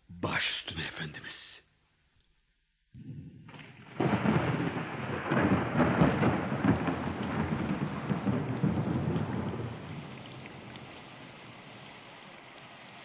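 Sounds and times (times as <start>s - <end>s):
thunder rumbling: 3.0s - 12.8s
heavy rain: 3.0s - 13.0s.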